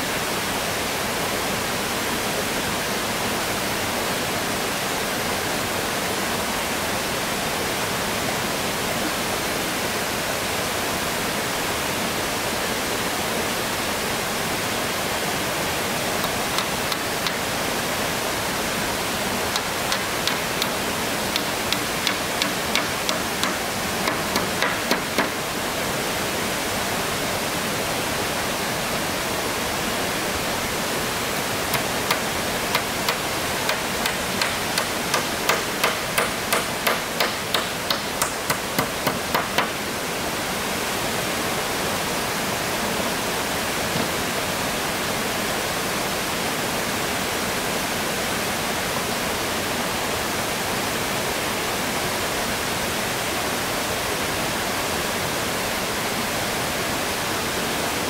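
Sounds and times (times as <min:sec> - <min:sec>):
stream water rushing: 0:00.0 - 0:58.0
hammer on wooden boards: 0:16.2 - 0:17.4, 0:19.5 - 0:25.4, 0:31.7 - 0:39.8.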